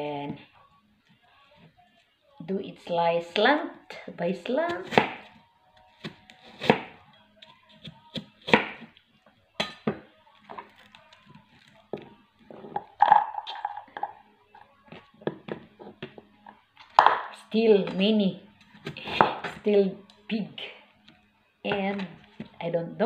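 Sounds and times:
knife chopping on cutting board: 4.7 - 5.3, 6.0 - 8.9.

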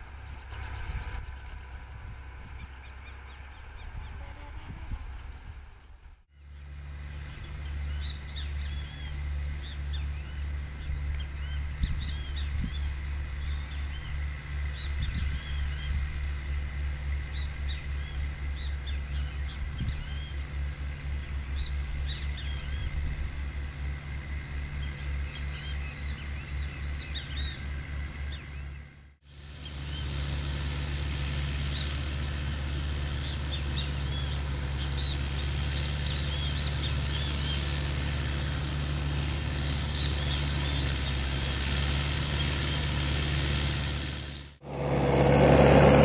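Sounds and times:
birds chirping: 0.0 - 5.6, 6.5 - 16.1, 17.1 - 23.1, 24.7 - 29.0, 33.0 - 37.8
tractor diesel engine under load: 0.0 - 46.0.

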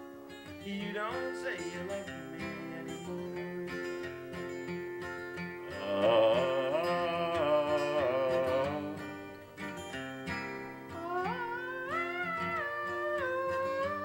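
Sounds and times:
acoustic guitar ballad: 0.0 - 14.0
person singing: 0.6 - 4.1, 5.6 - 9.2, 10.9 - 14.0.

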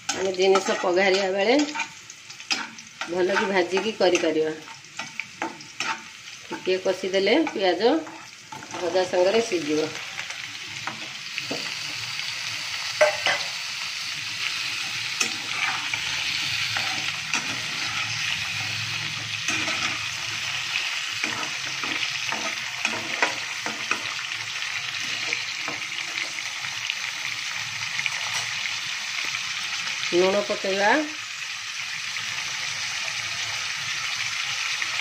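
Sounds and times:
vegetables sizzling in oil: 0.0 - 35.0
stirring scrapes against pan: 0.5 - 6.7, 14.7 - 20.2.

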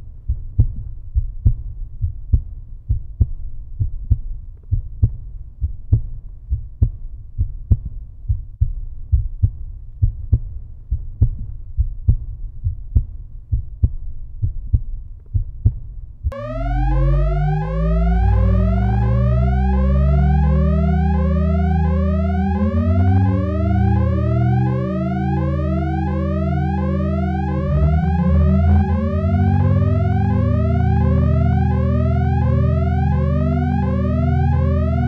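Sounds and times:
deep heartbeat-like thumping: 0.0 - 35.0
electronic tones sliding upward: 16.3 - 35.0
low drone: 16.3 - 35.0.

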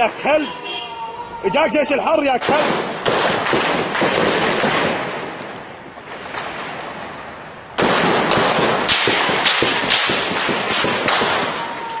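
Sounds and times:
gunshots with echo: 2.2 - 6.8, 7.8 - 11.9.

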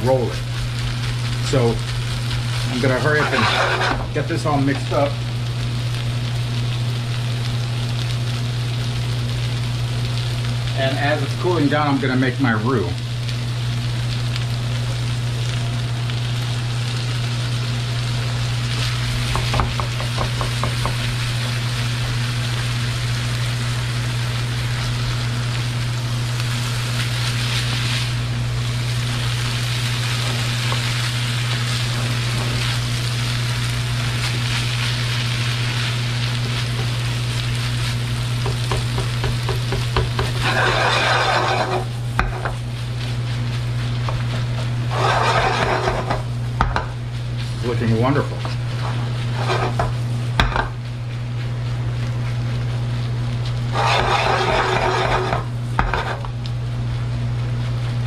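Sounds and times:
chicken sizzling in a frying pan: 0.0 - 58.0
steady low hum: 0.0 - 58.0
spatula scraping a pan: 2.6 - 4.2, 38.4 - 43.2, 44.1 - 46.3, 48.2 - 50.0, 53.7 - 56.3.

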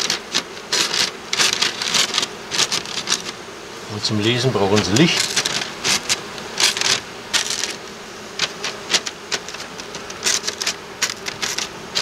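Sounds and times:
newspaper crackling: 0.0 - 3.4, 4.3 - 12.0
honeybees humming: 0.0 - 12.0.

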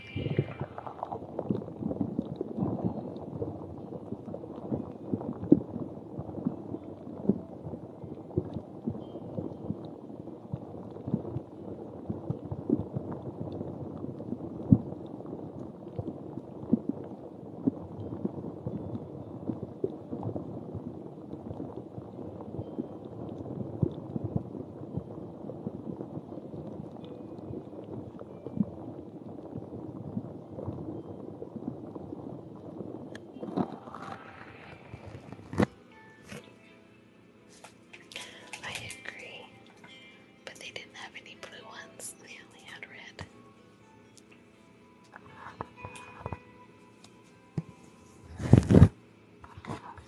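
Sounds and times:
object rubbing on microphone: 33.6 - 36.4, 48.0 - 50.0.

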